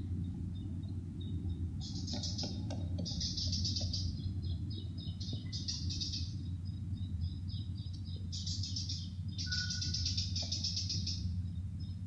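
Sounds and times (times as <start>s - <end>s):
songbird chirping in trills: 0.0s - 12.0s
steady low hum: 0.0s - 12.0s.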